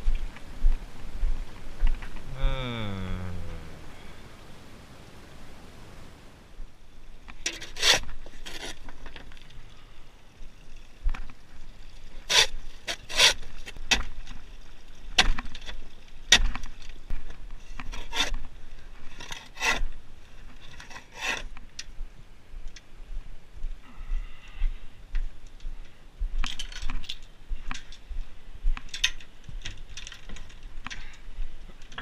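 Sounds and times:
shovel scraping truck bed: 7.5s - 8.8s, 12.2s - 14.0s.

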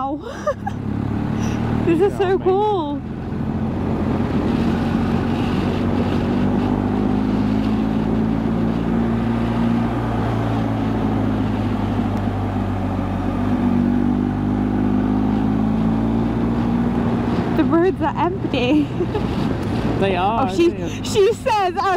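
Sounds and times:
road noise: 0.0s - 21.9s
wind noise: 3.0s - 14.1s.

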